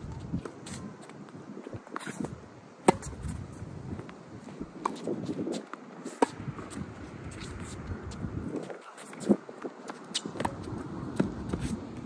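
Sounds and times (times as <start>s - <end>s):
tennis ball hit by racket: 2.8s - 3.4s, 6.1s - 7.8s, 10.1s - 10.6s.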